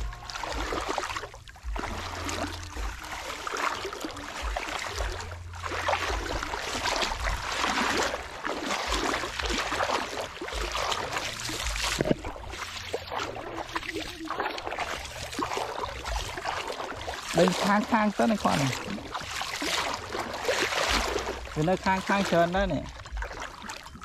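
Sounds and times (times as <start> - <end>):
low rumbles on microphone: 0.0 - 17.5
water sloshing and splashing: 0.0 - 24.0.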